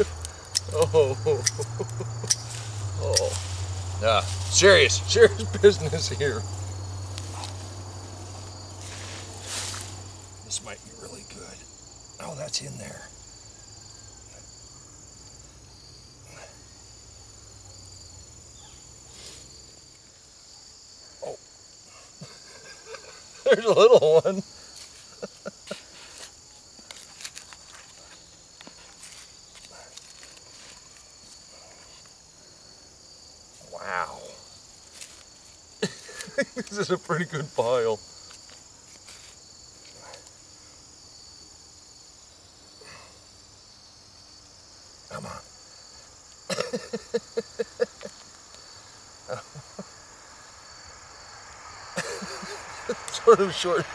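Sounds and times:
crickets chirring: 0.0 - 53.9
hands digging in soil: 8.4 - 10.1.

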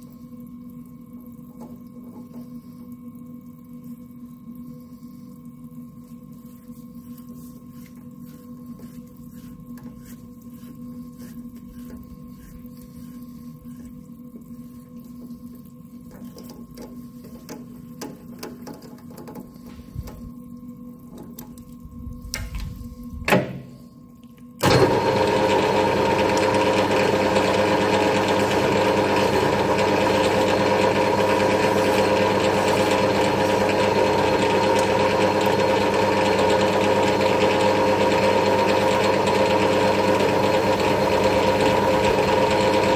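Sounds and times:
faint steady hum: 0.0 - 24.7
lathe whirring: 24.6 - 42.9.

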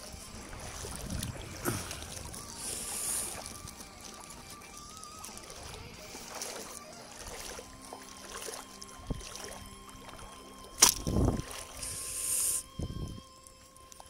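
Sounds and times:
hissing rush of water: 0.0 - 4.1, 11.7 - 12.8
knocks and sloshing: 0.0 - 11.9
splash in shallow water: 0.0 - 12.6
faint steady tones: 0.0 - 14.0.

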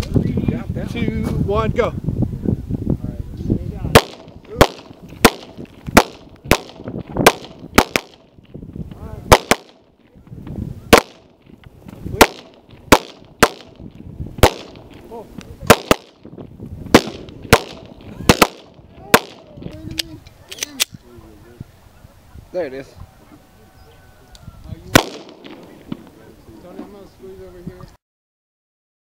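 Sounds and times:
gunshots: 3.9 - 8.3, 9.3 - 9.8, 10.9 - 11.3, 12.2 - 13.8, 14.4 - 14.9, 15.6 - 16.3, 16.9 - 19.5, 24.9 - 26.2.

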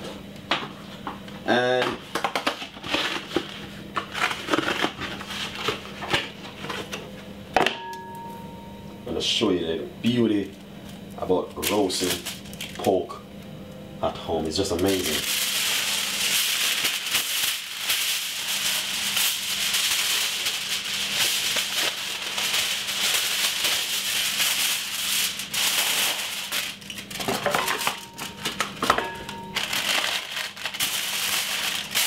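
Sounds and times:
aluminium foil crinkling: 2.4 - 6.9, 11.2 - 13.0, 14.5 - 32.0.

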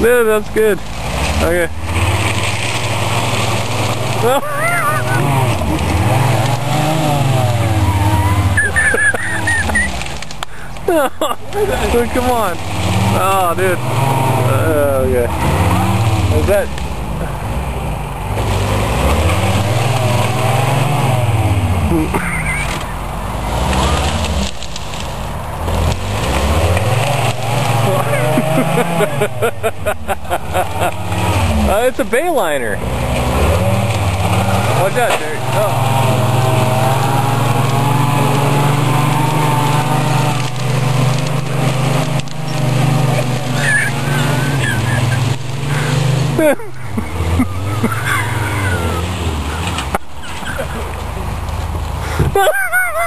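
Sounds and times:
engine revving: 0.0 - 53.0
clicks and crackles: 0.1 - 6.8, 8.6 - 12.0, 16.7 - 17.0, 21.9 - 31.6, 32.8 - 35.7, 37.4 - 52.3.

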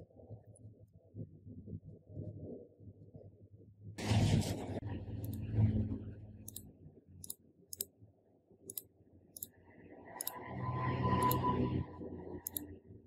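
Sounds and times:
sharp clicks: 11.2 - 11.4, 12.4 - 12.6.

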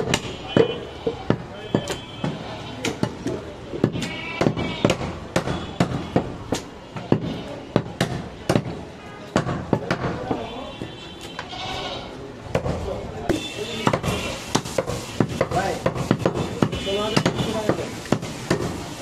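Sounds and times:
cleaver chopping meat on wooden block: 3.8 - 6.3, 13.9 - 18.8.

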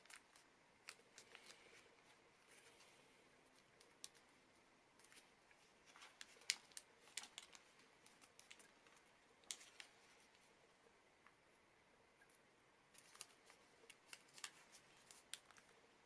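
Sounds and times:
paper rustling: 0.0 - 4.3, 5.0 - 10.5, 12.9 - 15.8
paper crackling: 0.0 - 10.5, 12.9 - 15.9.

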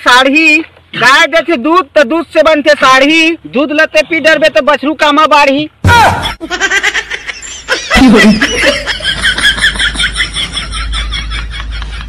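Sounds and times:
high-pitched laughter: 6.2 - 12.0.

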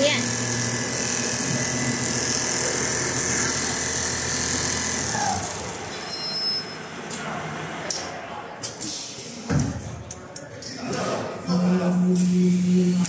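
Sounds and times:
sewing machine running: 0.0 - 6.1.

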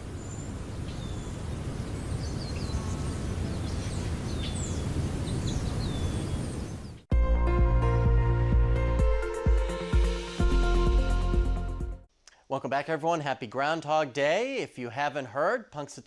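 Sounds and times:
birds chirping: 0.0 - 7.1
electronic music: 7.1 - 12.1.

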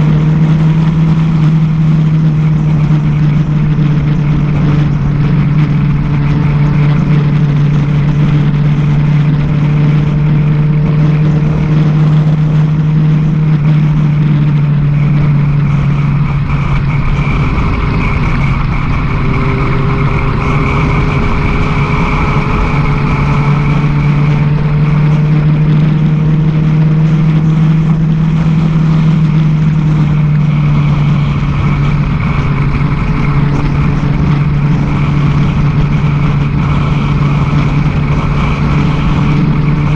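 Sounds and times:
motorcycle engine cruising: 0.0 - 39.9
wind rushing over microphone: 0.0 - 39.9.

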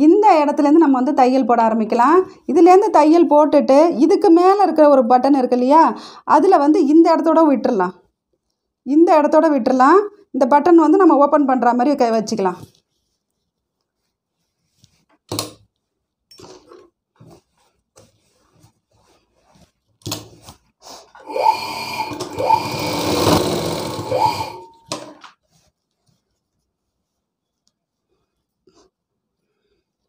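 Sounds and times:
sewing machine whirring: 21.2 - 25.3.

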